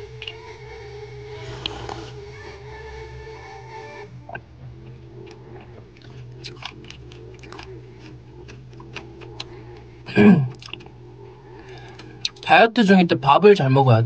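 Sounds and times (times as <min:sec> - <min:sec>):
chewing mouth sounds: 0:04.3 - 0:09.9, 0:10.5 - 0:11.0
person swallowing: 0:08.5 - 0:10.9.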